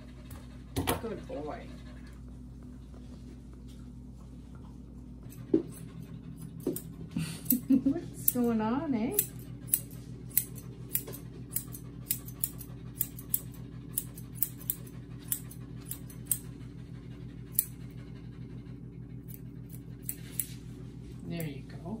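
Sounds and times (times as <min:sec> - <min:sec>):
steady low hum: 0:00.0 - 0:22.0
shears snipping hair: 0:05.2 - 0:16.6, 0:17.5 - 0:18.0, 0:19.2 - 0:22.0.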